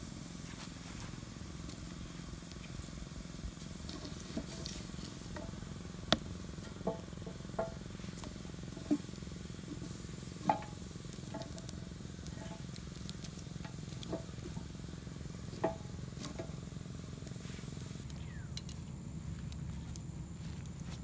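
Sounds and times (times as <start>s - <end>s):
steady low rumble: 10.8s - 21.0s.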